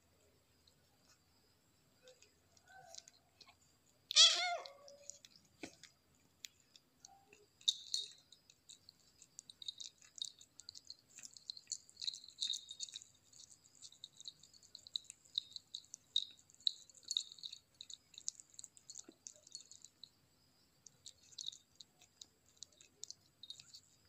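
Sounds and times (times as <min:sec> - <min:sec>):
kitten meowing: 0:04.1 - 0:04.8
kitten chewing: 0:04.8 - 0:24.0.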